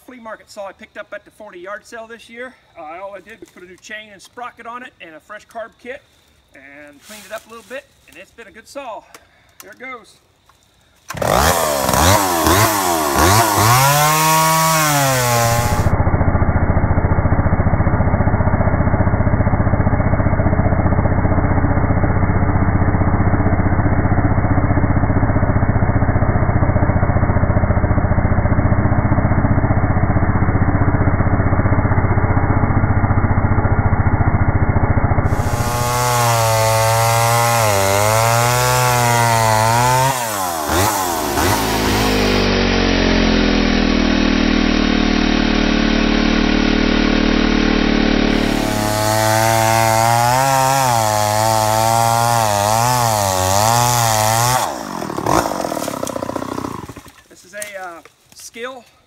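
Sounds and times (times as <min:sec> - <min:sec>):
chainsaw revving and cutting log: 0:11.1 - 0:57.3.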